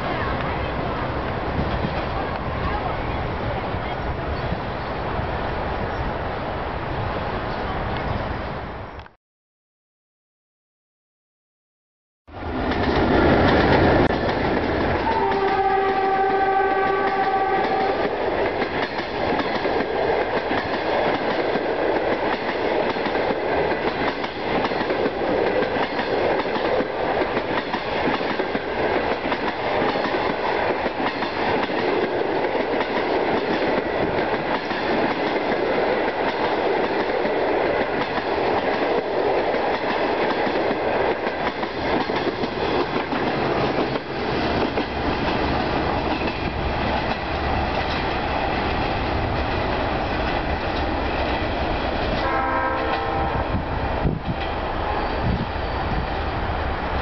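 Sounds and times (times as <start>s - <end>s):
train wheels clattering over rail joints: 18.5s - 35.6s.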